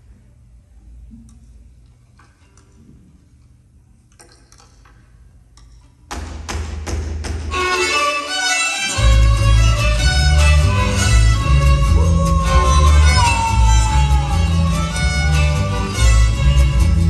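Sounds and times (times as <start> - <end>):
mariachi ensemble playing: 7.4 - 17.0
violins melody: 7.5 - 17.0
deep bass notes: 9.0 - 17.0.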